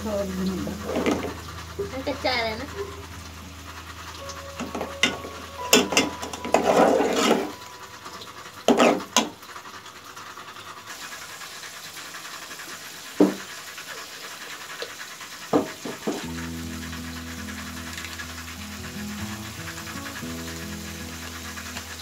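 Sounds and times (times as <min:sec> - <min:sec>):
ladle scraping and knocking pot: 0:00.7 - 0:01.9, 0:04.6 - 0:07.6, 0:08.7 - 0:09.3.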